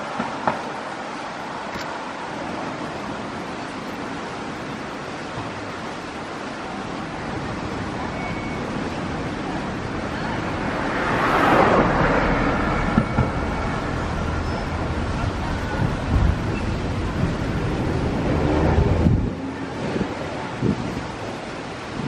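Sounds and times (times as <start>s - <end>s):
wind buffeting microphone: 2.4s - 22.0s
cars driving past: 7.7s - 20.8s.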